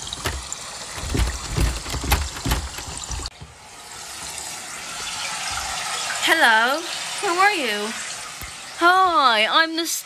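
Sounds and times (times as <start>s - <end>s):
door thumps and clicks: 0.0s - 3.5s.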